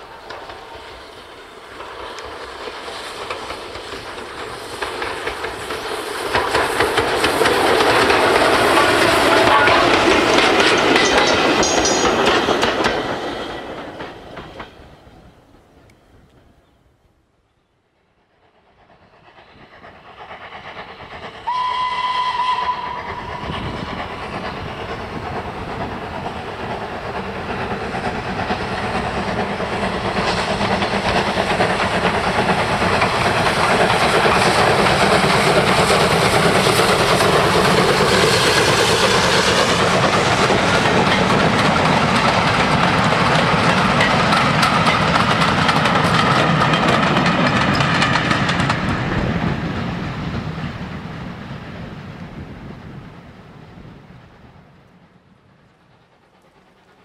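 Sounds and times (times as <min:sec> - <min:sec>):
train wheels clattering over rails: 0:00.0 - 0:15.4, 0:18.9 - 0:51.8
steam locomotive whistle: 0:21.4 - 0:23.7.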